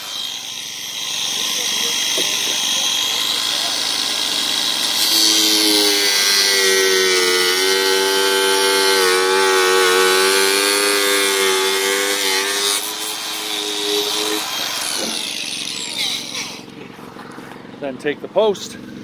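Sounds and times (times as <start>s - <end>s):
angle grinder cutting plastic: 0.0s - 16.8s.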